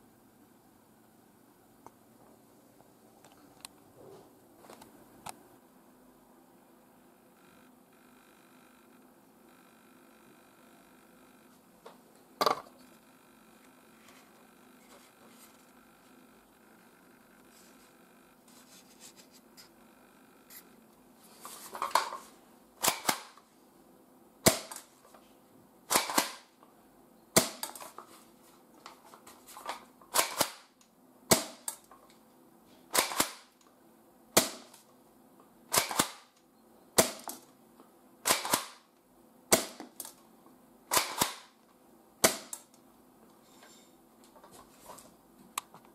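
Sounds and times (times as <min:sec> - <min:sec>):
airsoft shotgun cocked and fired: 0:22.8 - 0:23.4, 0:24.4 - 0:24.9, 0:25.9 - 0:26.5, 0:27.4 - 0:27.9, 0:29.6 - 0:31.8, 0:32.9 - 0:33.6, 0:35.7 - 0:36.4, 0:37.0 - 0:37.4, 0:38.2 - 0:38.9, 0:39.5 - 0:40.2, 0:40.9 - 0:41.6, 0:42.2 - 0:42.7.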